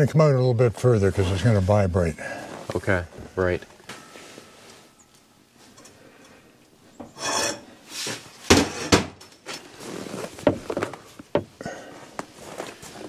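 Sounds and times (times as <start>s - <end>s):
gloved hands handling a tube: 9.4s - 13.0s.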